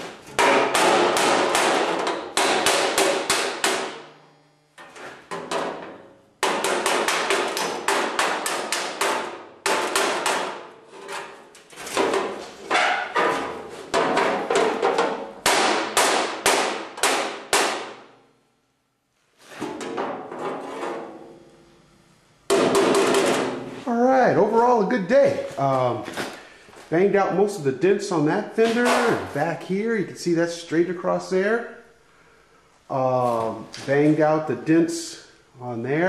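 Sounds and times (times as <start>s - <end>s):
hammer striking sheet metal: 0.0s - 4.1s, 4.8s - 18.2s, 22.5s - 23.8s, 28.7s - 29.4s.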